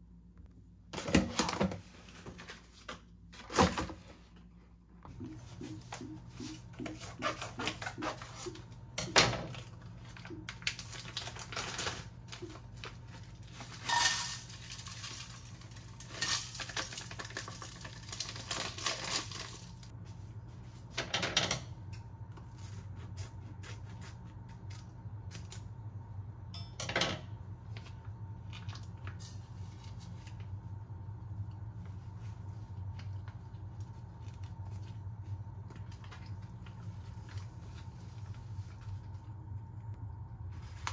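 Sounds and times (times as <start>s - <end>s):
low steady hum: 0.0s - 40.9s
plastic packets rustling and tearing: 9.5s - 19.9s.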